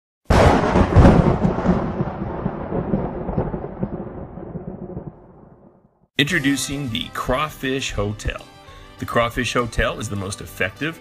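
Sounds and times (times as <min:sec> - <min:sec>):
thunder rumbling: 0:00.3 - 0:06.0.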